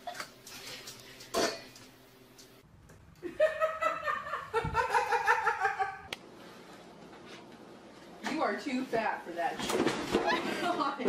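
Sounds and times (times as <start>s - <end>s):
person laughing: 3.2s - 6.1s.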